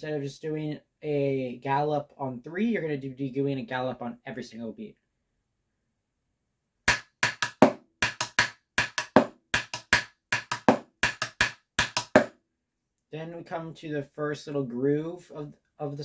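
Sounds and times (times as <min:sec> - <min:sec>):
drumsticks on a practice pad: 0:06.9 - 0:12.3.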